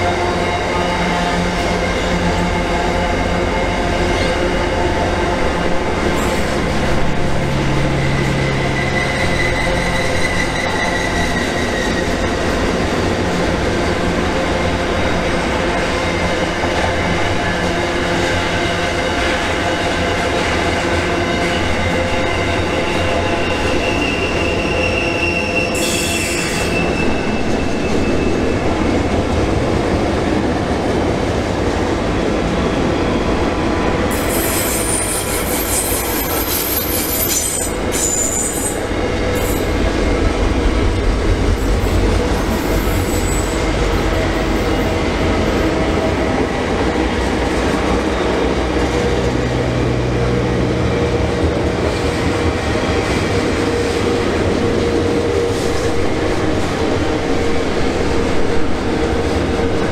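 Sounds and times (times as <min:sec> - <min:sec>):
freight train wheels rumbling on rail: 0:00.0 - 0:59.9
high-pitched wheel squeal: 0:07.7 - 0:12.3, 0:22.2 - 0:28.6, 0:34.1 - 0:39.8.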